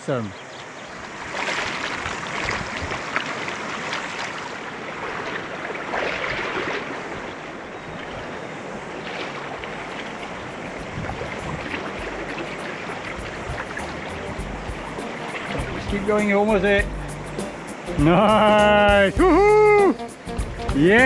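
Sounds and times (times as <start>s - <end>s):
stream rushing and burbling: 0.0s - 21.0s
wind rumble on microphone: 1.0s - 3.8s, 9.6s - 15.0s.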